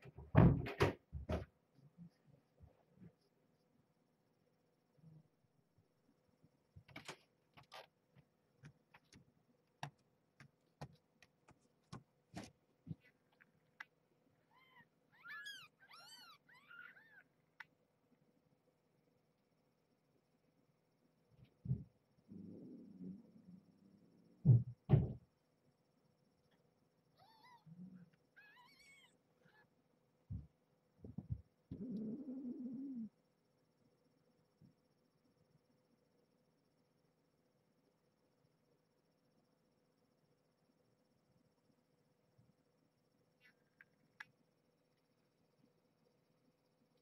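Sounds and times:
faint steady hum: 0:00.0 - 0:47.0
faint irregular clicks and taps: 0:06.8 - 0:14.0
kittens mewing: 0:14.4 - 0:17.3.

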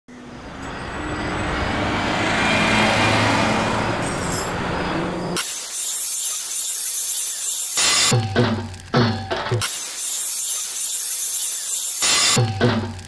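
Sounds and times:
harsh high hiss: 0:08.8 - 0:12.9.

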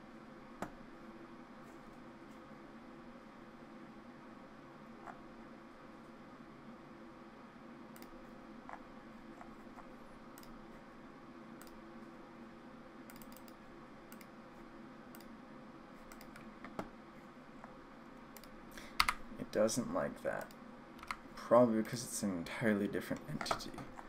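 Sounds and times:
faint room hum: 0:00.0 - 0:24.0
computer mouse and keyboard clicks: 0:07.9 - 0:10.6, 0:11.6 - 0:11.8, 0:13.1 - 0:14.4, 0:16.0 - 0:16.9, 0:18.4 - 0:19.2, 0:20.4 - 0:21.2, 0:23.1 - 0:24.0.

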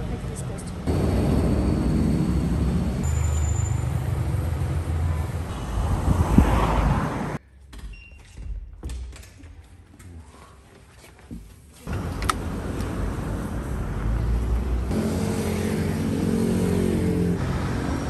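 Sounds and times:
cars passing: 0:00.0 - 0:07.4, 0:11.9 - 0:18.0.

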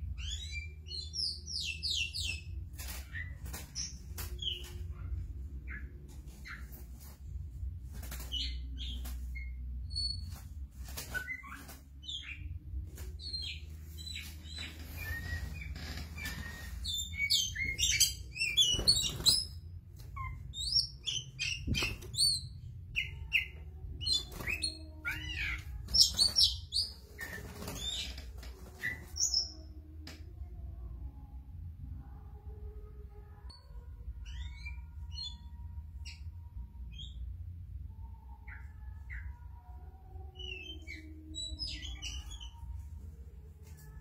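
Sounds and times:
bird singing: 0:20.2 - 0:29.7, 0:38.0 - 0:42.8.

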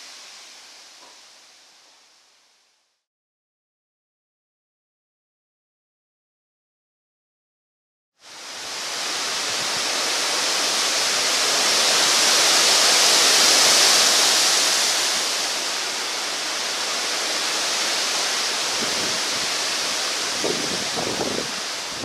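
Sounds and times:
storm wind rushing through pine trees: 0:08.2 - 0:22.0.

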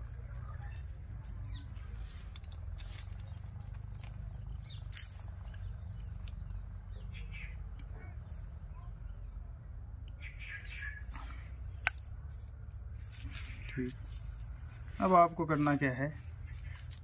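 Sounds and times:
small clicks and rustles: 0:00.0 - 0:07.0
low steady rumble: 0:00.0 - 0:17.0.

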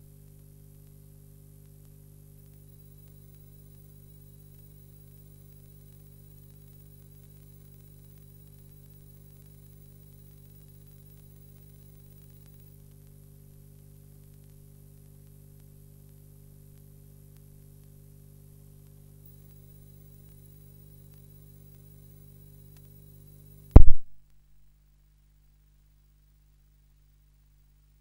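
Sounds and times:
faint electrical hum: 0:00.0 - 0:28.0
thin high whine: 0:02.3 - 0:13.3, 0:19.1 - 0:24.1.

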